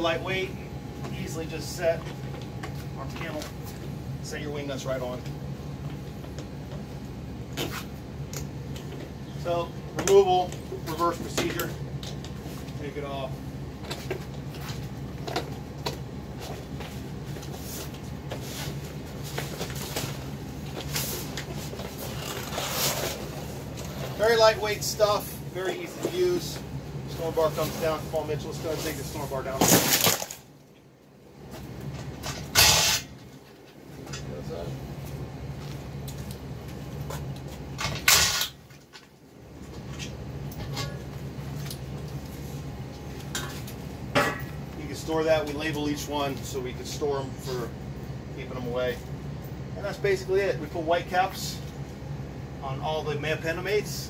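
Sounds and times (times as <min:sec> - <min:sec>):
steady low hum: 0:00.0 - 0:54.0
fabric panel rustling and scraping: 0:20.8 - 0:24.3.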